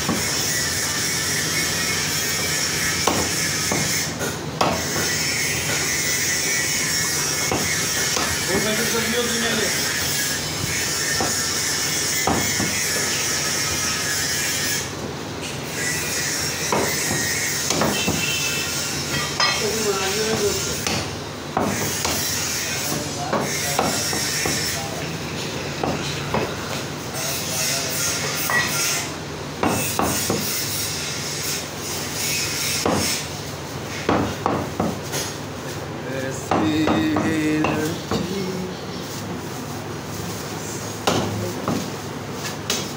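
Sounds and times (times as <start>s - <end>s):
cleaver chopping meat on wood: 0.0s - 0.4s, 3.0s - 5.9s, 7.4s - 8.8s, 11.0s - 11.5s, 12.1s - 13.2s, 16.6s - 18.3s, 20.2s - 24.8s, 25.8s - 26.7s, 29.6s - 30.6s, 32.7s - 33.3s, 34.0s - 35.1s, 36.5s - 38.3s, 41.0s - 41.9s.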